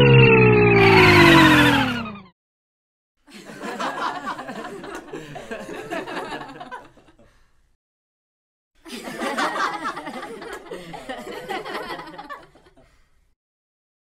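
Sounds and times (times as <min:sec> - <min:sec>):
person laughing: 0:03.3 - 0:07.3, 0:08.9 - 0:13.0.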